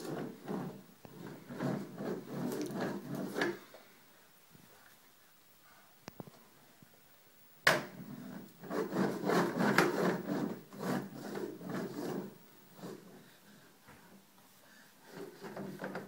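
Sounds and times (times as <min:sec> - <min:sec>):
toy wheels rumbling on wood: 0:00.0 - 0:03.7, 0:08.2 - 0:13.2.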